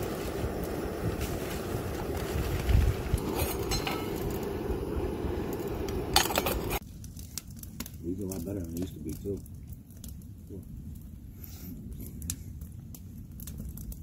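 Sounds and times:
wind rumbling on microphone: 0.0 - 6.8
metal beer cans clinking: 3.4 - 4.2.

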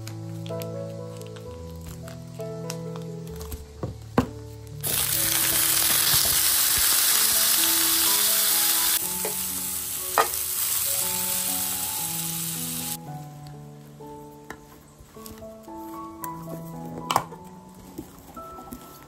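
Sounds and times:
sausages sizzling in oil: 4.8 - 13.0.

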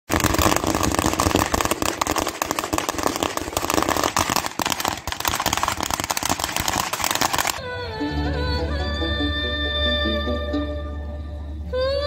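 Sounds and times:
firecrackers crackling: 0.0 - 7.6.

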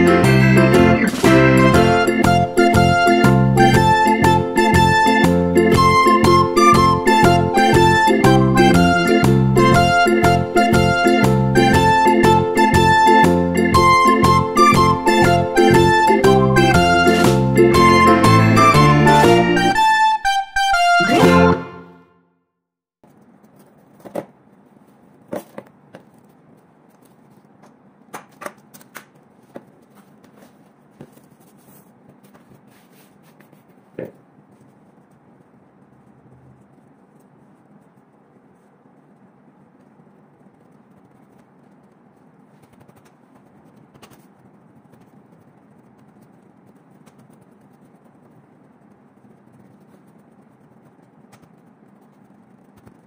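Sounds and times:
cling film crackling: 23.0 - 53.0
steady low hum: 28.7 - 53.0.

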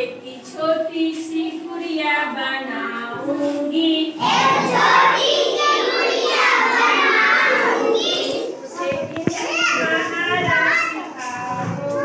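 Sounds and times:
children singing: 4.2 - 8.7.

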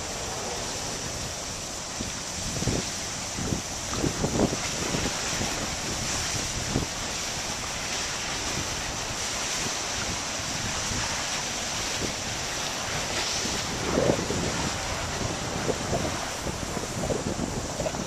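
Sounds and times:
hiss of drifting ice and water: 0.0 - 18.0
wind rumble on microphone: 0.0 - 18.0.

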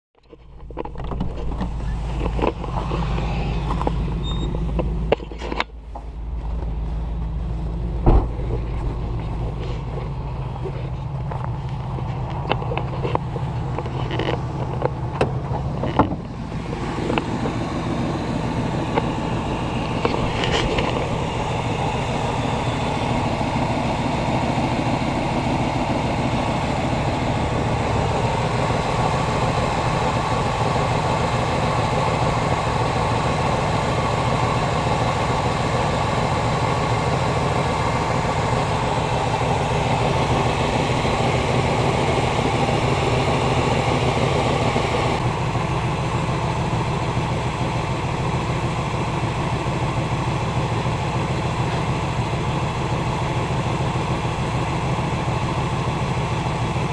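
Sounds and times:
car engine idling: 0.3 - 56.9
handling knocks: 8.0 - 9.5.

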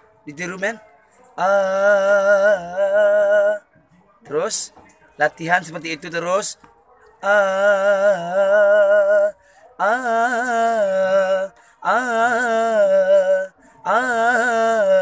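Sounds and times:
breaths between notes: 9.4 - 9.8, 11.5 - 11.8, 13.6 - 13.8.

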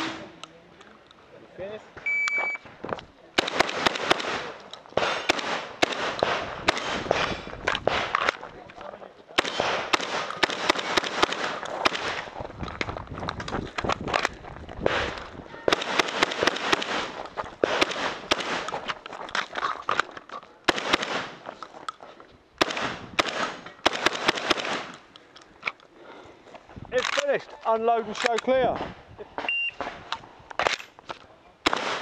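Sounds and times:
shotgun rapid fire: 3.4 - 8.2, 9.4 - 12.3, 14.9 - 18.7, 20.7 - 21.4, 22.6 - 24.9, 31.6 - 32.0.

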